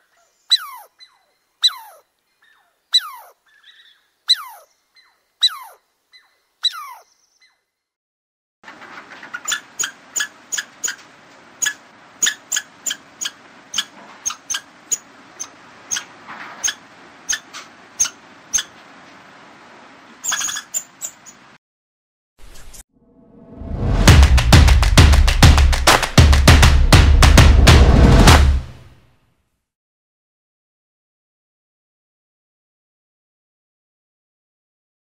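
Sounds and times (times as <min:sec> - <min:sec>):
squirrel squeaking: 0:00.5 - 0:07.6, 0:09.3 - 0:11.0, 0:11.6 - 0:18.8, 0:20.2 - 0:21.4.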